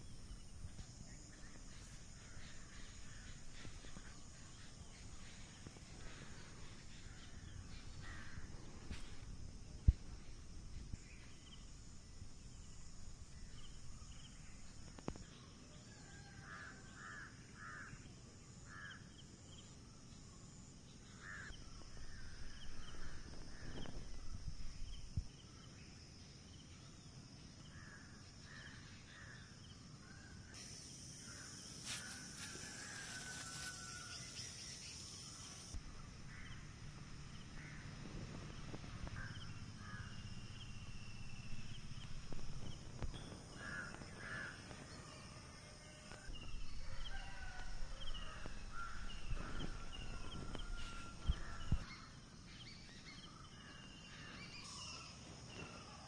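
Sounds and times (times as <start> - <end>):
high-pitched insect drone: 30.5 - 56.0.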